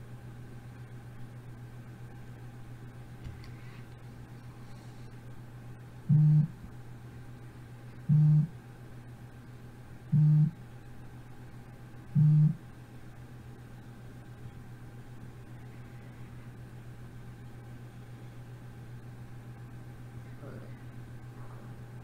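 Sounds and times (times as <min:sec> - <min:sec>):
low electrical hum: 0:00.0 - 0:22.0
low buzz: 0:05.6 - 0:06.7, 0:08.0 - 0:08.6, 0:10.1 - 0:10.6, 0:12.1 - 0:12.7.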